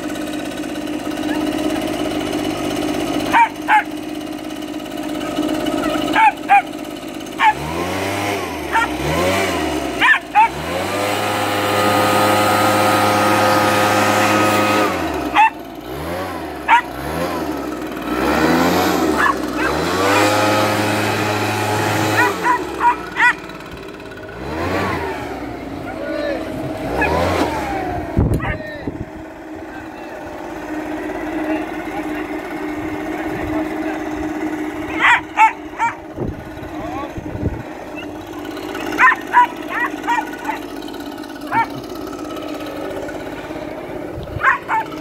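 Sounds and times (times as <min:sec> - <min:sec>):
leaf blower engine revving: 0:00.0 - 0:45.0
puppy barking: 0:01.2 - 0:01.6, 0:03.3 - 0:03.9, 0:05.2 - 0:06.7, 0:07.4 - 0:07.6, 0:08.7 - 0:09.0, 0:10.0 - 0:10.6, 0:15.3 - 0:15.6, 0:16.7 - 0:17.0, 0:19.2 - 0:20.4, 0:22.2 - 0:23.4, 0:25.8 - 0:26.2, 0:26.9 - 0:27.2, 0:28.4 - 0:28.7, 0:34.9 - 0:36.0, 0:38.9 - 0:40.7, 0:41.4 - 0:41.8, 0:44.4 - 0:45.0.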